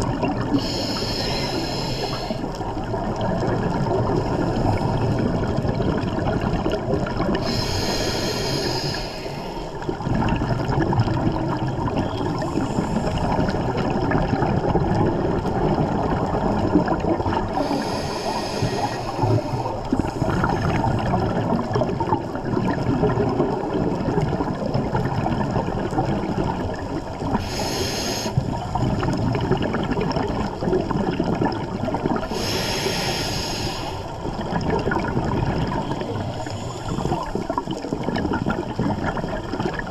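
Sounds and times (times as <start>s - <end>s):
water churning with exhaust bubbles: 0.0s - 39.9s
hissing breaths through regulator: 0.5s - 2.6s, 7.4s - 9.8s, 17.6s - 20.7s, 27.4s - 28.5s, 32.3s - 34.2s, 36.0s - 37.5s.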